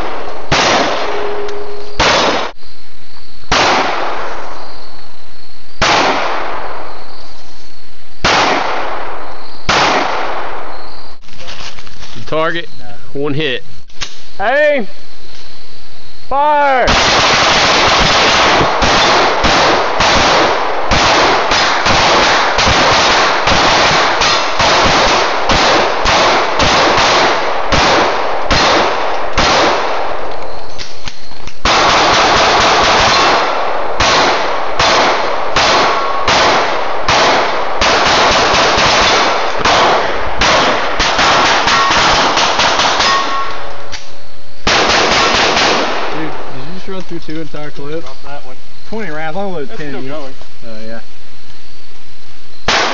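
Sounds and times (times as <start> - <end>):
pistols firing: 0.0 - 2.6, 3.5 - 4.4, 5.8 - 6.7, 8.2 - 10.6, 16.9 - 30.3, 31.6 - 43.8, 44.6 - 46.5, 52.7 - 52.9
bullets clanging on steel targets: 42.7 - 43.6.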